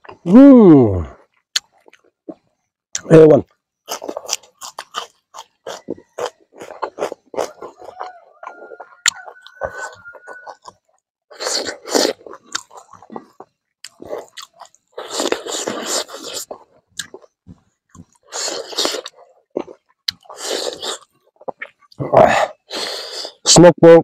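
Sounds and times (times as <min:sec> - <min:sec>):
close-up chewing: 0:01.1 - 0:22.0.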